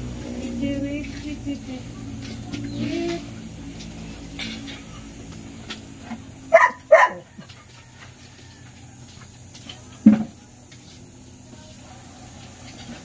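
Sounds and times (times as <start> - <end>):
dog barking: 6.5 - 7.3.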